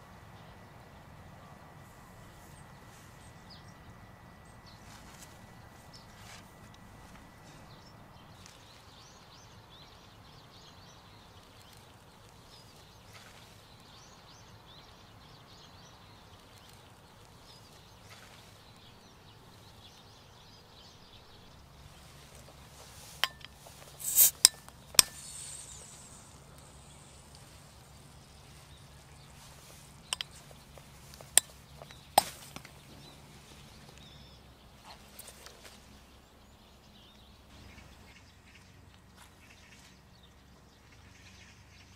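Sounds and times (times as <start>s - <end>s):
faint outdoor background: 0.0s - 41.9s
short hiss: 23.8s - 27.8s
bottle cap cracking open: 24.0s - 25.9s.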